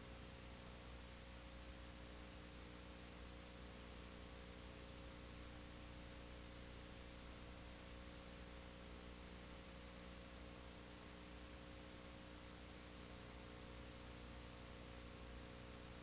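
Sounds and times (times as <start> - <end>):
faint steady hiss: 0.0 - 16.0
low electrical hum: 0.0 - 16.0.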